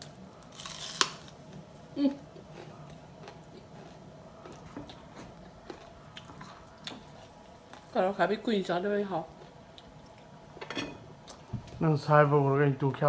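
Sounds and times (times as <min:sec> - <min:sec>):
person biting and chewing: 0:00.5 - 0:01.4.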